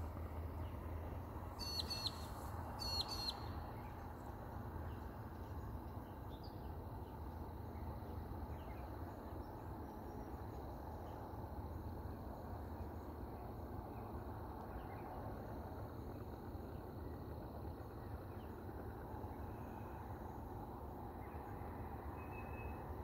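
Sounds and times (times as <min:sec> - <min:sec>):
faint outdoor hiss: 0:00.0 - 0:23.0
faint bird chirps: 0:01.6 - 0:04.0, 0:22.1 - 0:22.9.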